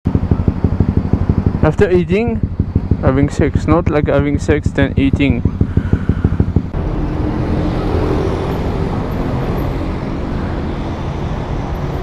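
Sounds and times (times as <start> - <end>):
motorcycle engine idling: 0.1 - 6.9.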